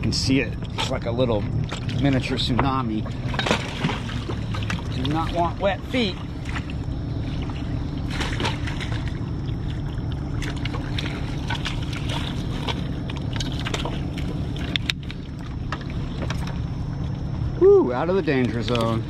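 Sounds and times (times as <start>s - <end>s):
fishing gear knocking and scraping: 0.0s - 5.5s, 11.0s - 16.8s
ship engine drone: 0.0s - 19.0s.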